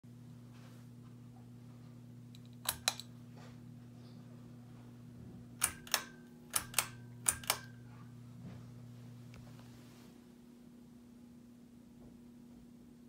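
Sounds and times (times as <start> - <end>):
low electrical fan buzz: 0.1 - 13.0
pull-chain switch clicking: 2.4 - 3.1, 5.6 - 7.8.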